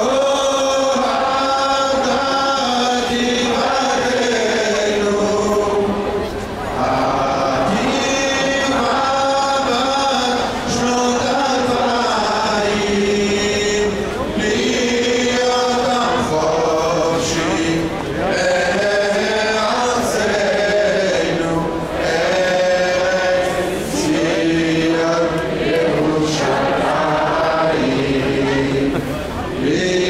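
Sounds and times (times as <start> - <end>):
crowd singing in unison: 0.0 - 30.0.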